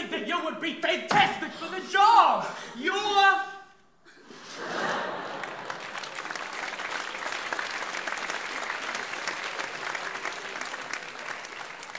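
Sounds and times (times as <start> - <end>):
audience applauding: 4.8 - 11.9.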